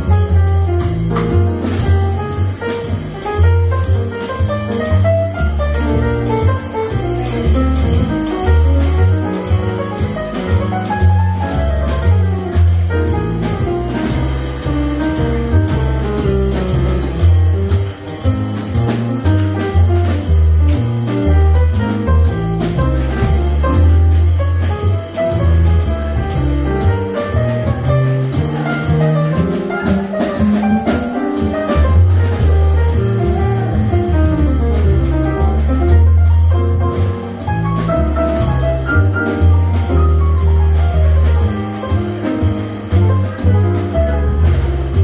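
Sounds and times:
double bass: 0.0s - 45.0s
drums and cymbals: 0.0s - 45.0s
piano: 0.0s - 45.0s.

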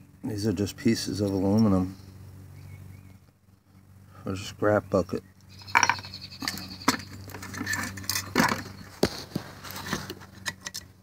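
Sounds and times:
steady low hum: 0.0s - 11.0s
metal pieces clinking: 5.6s - 6.7s.

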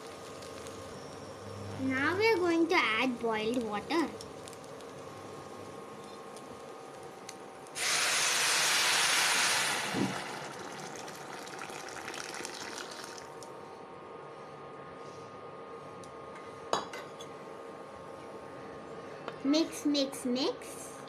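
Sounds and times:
water pouring into a pot: 7.8s - 13.4s.

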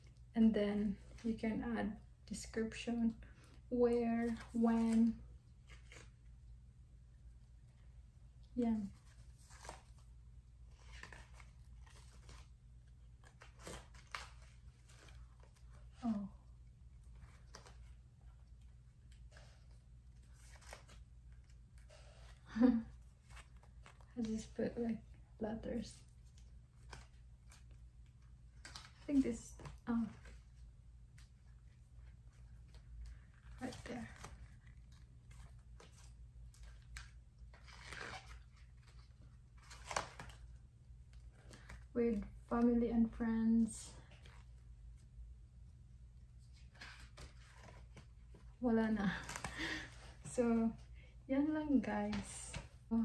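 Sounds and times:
low steady hum: 0.0s - 53.0s
soft paper rustle: 0.0s - 53.0s.

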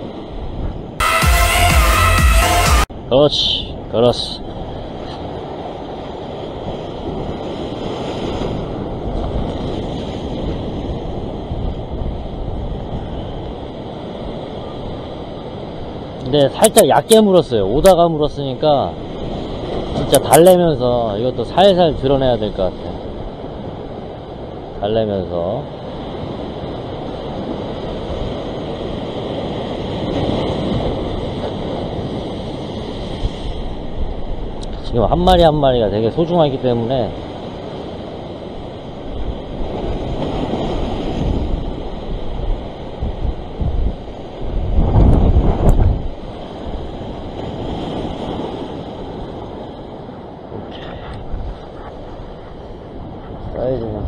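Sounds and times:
ocean surf washing against rocks: 2.9s - 54.0s
wind buffeting microphone: 3.8s - 16.4s, 25.7s - 54.0s.

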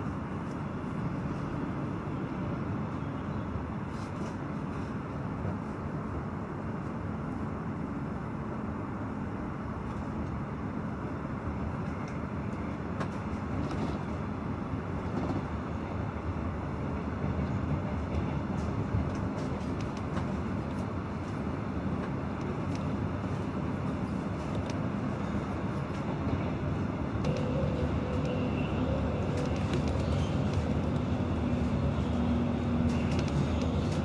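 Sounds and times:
train wheels rumbling on rails: 8.6s - 34.0s.

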